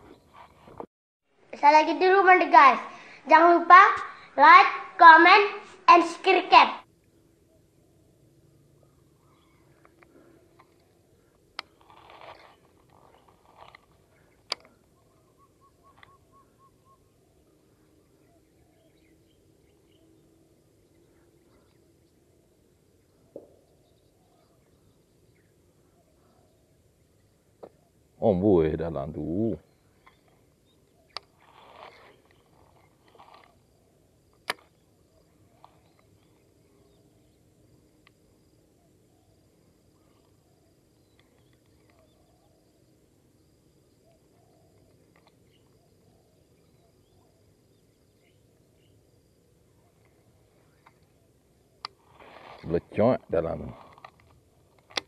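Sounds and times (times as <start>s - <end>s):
bird hooting: 8.7s - 10.5s, 12.0s - 20.3s
reel rustling whirr: 9.1s - 15.4s, 29.9s - 38.4s, 47.5s - 52.8s
fishing line hiss: 51.7s - 53.0s.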